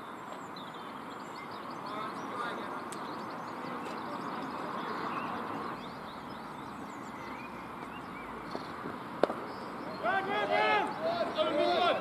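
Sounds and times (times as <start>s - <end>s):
birds chirping and singing: 0.0s - 12.0s
outdoor background hiss: 0.0s - 12.0s.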